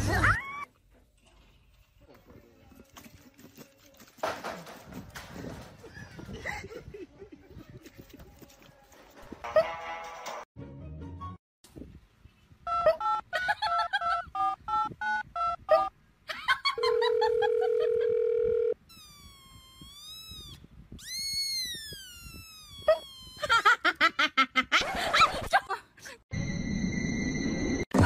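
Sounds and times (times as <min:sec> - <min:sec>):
laughter: 0:05.8 - 0:08.2, 0:12.7 - 0:14.5, 0:15.7 - 0:18.1, 0:23.4 - 0:26.2.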